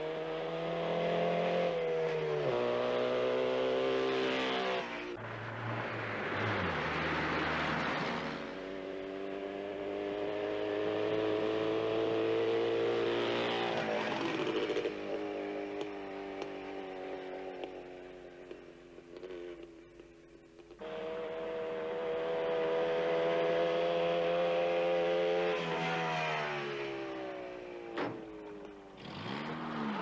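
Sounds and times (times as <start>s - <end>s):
motorcycle engine passing: 0.0s - 19.7s, 20.8s - 30.0s
car driving past: 4.2s - 12.1s.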